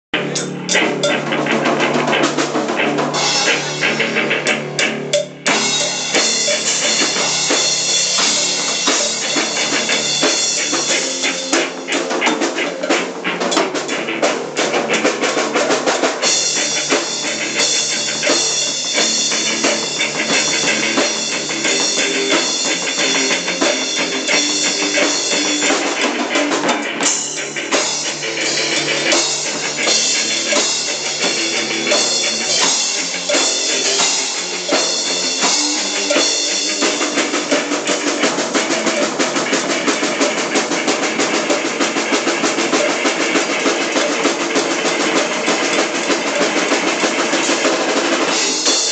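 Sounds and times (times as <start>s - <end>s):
drum kit rock beat: 0.0s - 48.9s
cowbell struck: 0.4s - 1.5s, 5.1s - 13.7s, 28.7s - 37.3s.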